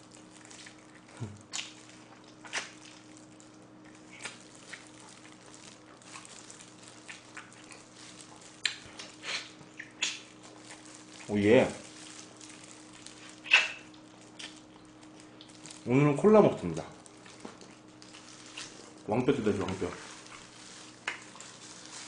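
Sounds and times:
wet smacking while eating: 0.0 - 15.9, 17.0 - 22.0.

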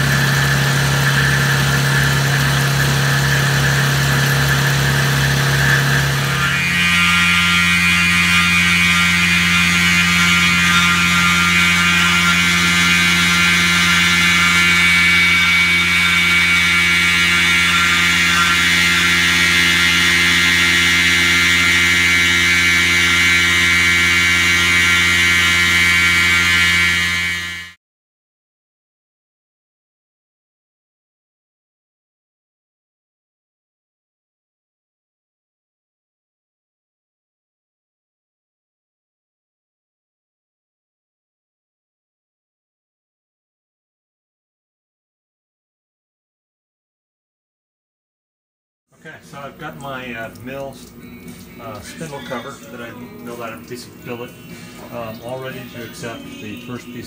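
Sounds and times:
mill cutting metal with ringing tone: 0.0 - 27.8, 50.6 - 57.0.

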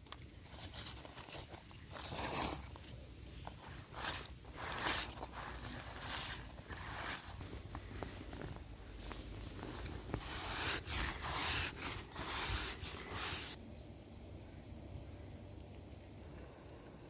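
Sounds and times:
rustling and swishing: 0.0 - 13.6.

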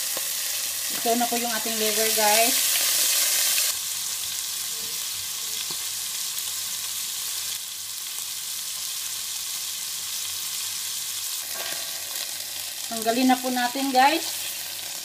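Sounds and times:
livers sizzling in a pan: 0.0 - 15.0.

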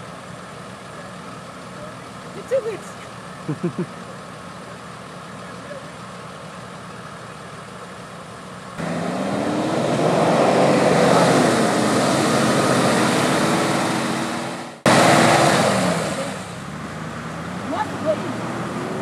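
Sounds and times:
vehicle engine revving hard: 8.8 - 19.0.

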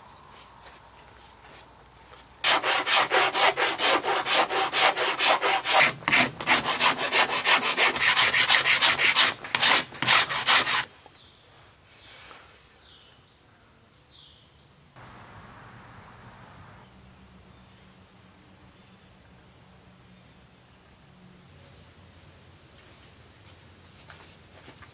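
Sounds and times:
hand file rasping wood: 2.4 - 10.9.

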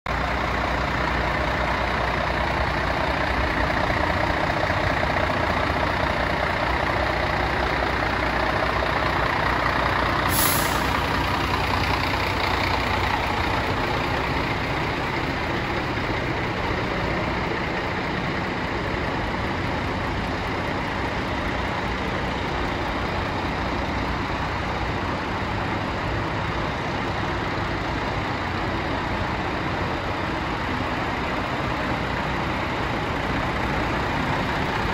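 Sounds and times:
diesel truck engine idling: 0.1 - 34.9
compressed air hiss: 10.2 - 11.1.

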